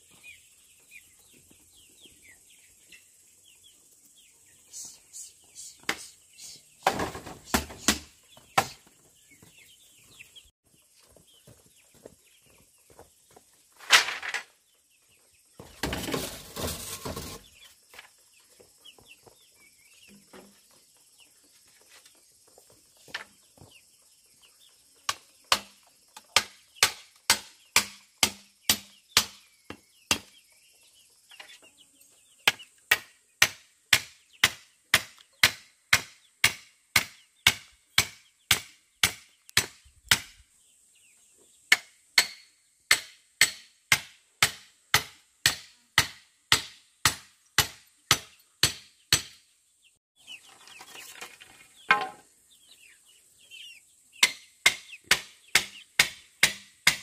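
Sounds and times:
high-pitched hiss: 4.6s - 8.8s.

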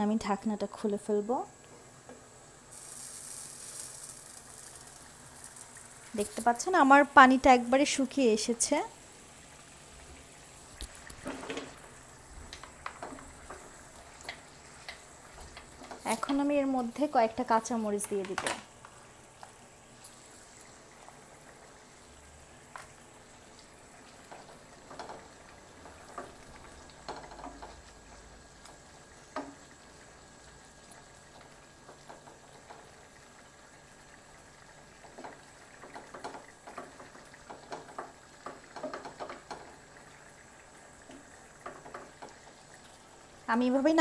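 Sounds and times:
curry bubbling in a pan: 0.3s - 44.0s
spatula stirring wet taps: 12.4s - 16.9s, 35.0s - 39.8s.

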